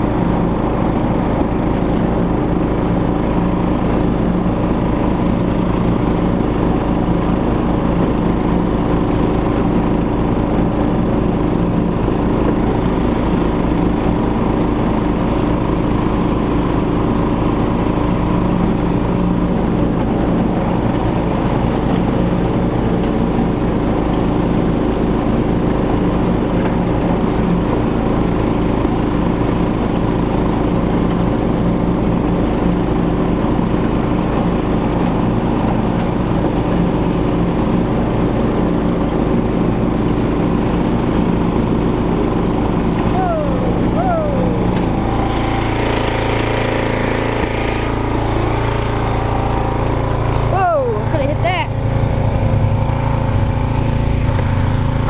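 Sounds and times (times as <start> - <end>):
lawn tractor engine mowing: 0.0 - 55.0.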